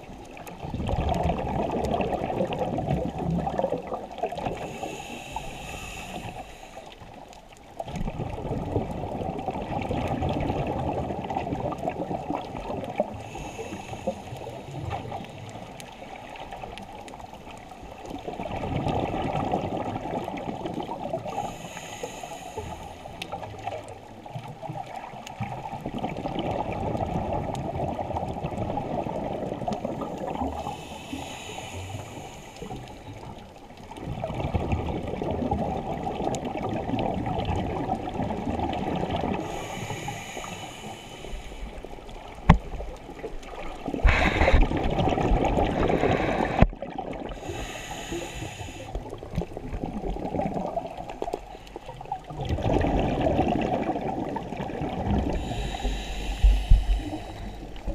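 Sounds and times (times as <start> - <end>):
exhaled bubbles underwater: 0.0 - 57.9
regulator inhalation hiss: 4.6 - 7.0, 13.2 - 14.6, 21.3 - 23.2, 30.5 - 33.1, 39.4 - 41.8, 45.8 - 46.7, 47.3 - 49.0, 55.3 - 57.9.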